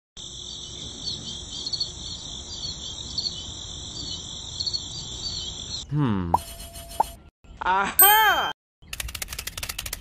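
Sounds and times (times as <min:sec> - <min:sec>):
crickets chirping: 0:00.2 - 0:05.8.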